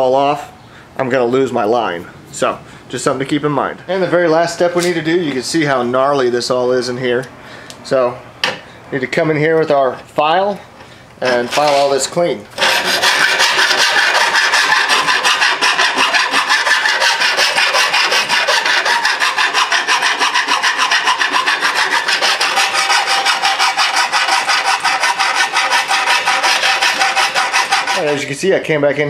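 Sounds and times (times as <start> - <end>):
hand file rasping on metal: 11.2 - 28.3.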